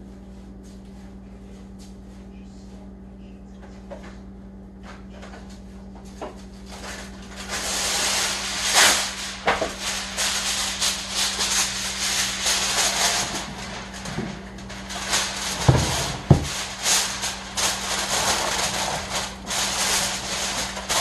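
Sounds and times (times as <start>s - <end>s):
aluminium foil crackling: 6.5s - 21.0s.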